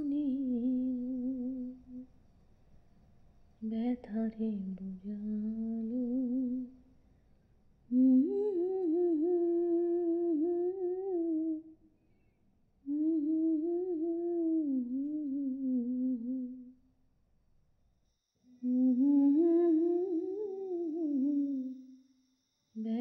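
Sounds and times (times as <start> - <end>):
woman humming: 0.0 - 2.0, 7.9 - 11.7, 12.9 - 16.7, 18.6 - 22.0.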